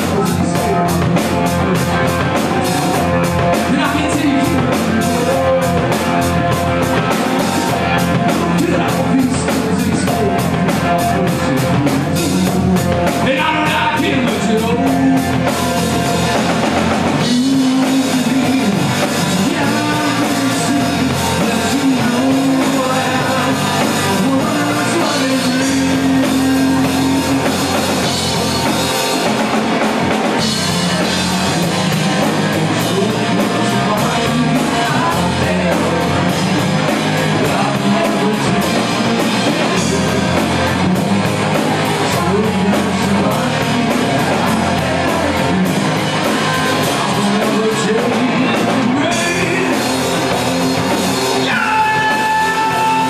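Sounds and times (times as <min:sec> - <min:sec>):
bass guitar: 0:00.0 - 0:53.0
drum kit: 0:00.0 - 0:53.0
electric guitar: 0:00.0 - 0:53.0
man singing lead vocals: 0:00.0 - 0:53.0.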